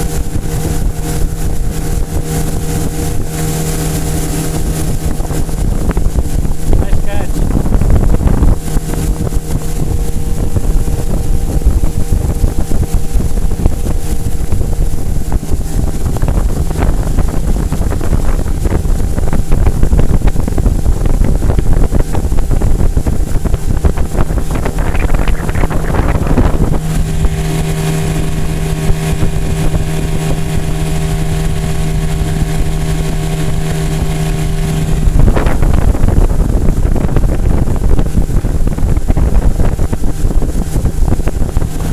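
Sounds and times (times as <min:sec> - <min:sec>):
outboard motor running: 0:00.0 - 0:41.9
wind on microphone: 0:00.0 - 0:41.9.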